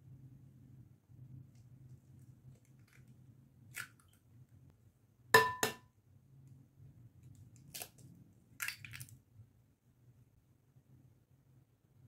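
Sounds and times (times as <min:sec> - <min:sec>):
egg clinking on glass bowl: 0:05.4 - 0:05.8.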